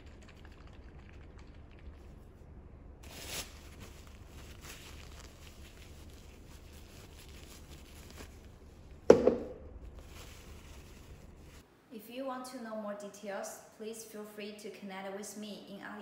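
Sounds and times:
tissue rustling: 0:03.0 - 0:08.8, 0:09.8 - 0:11.6
faint handling sounds: 0:03.0 - 0:11.6.

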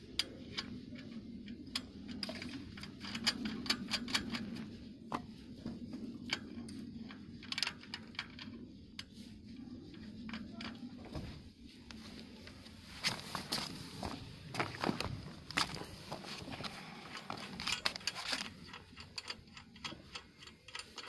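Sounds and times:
nut threading metallic clicks: 0:17.2 - 0:21.0.

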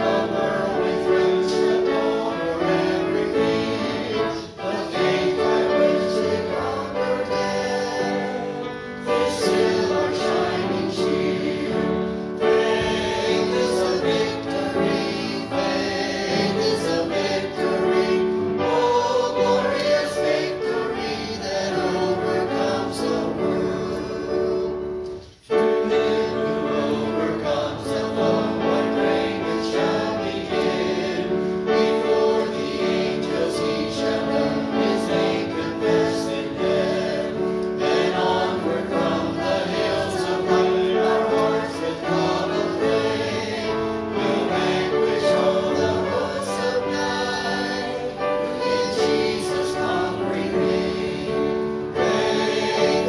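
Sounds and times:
congregation singing a hymn: 0:00.0 - 0:53.0.

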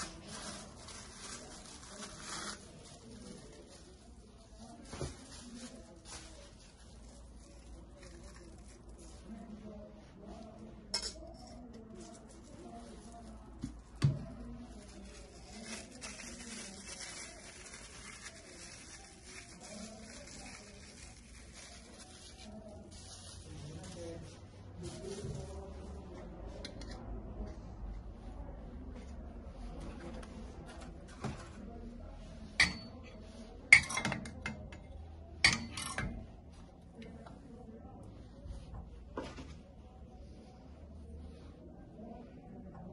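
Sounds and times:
metal cups clinking and knocking: 0:33.7 - 0:34.7, 0:35.4 - 0:36.1.

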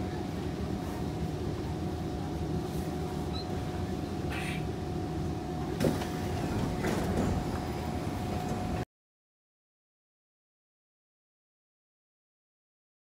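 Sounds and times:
steady hum: 0:00.0 - 0:08.8
train interior low rumble: 0:00.0 - 0:08.8
sliding train doors opening: 0:05.7 - 0:08.8.

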